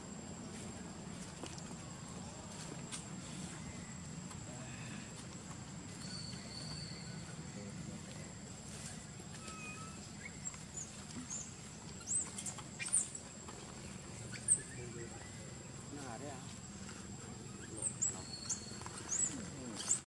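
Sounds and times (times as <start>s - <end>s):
insect drone: 0.0s - 20.0s.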